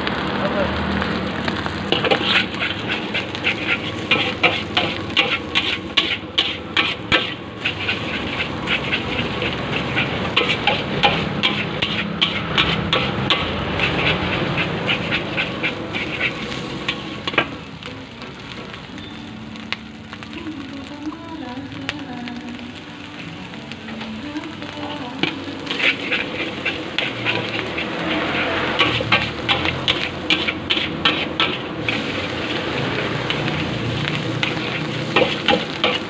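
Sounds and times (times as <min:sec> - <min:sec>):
rice frying: 0:00.0 - 0:36.0
metal spatula scraping a wok: 0:01.8 - 0:17.6, 0:25.2 - 0:36.0.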